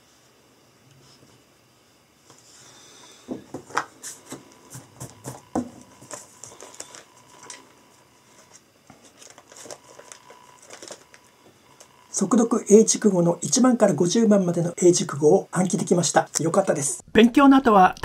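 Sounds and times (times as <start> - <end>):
taps knocks and rustles on desk: 3.3 - 6.6
book pages flipping: 3.7 - 11.9.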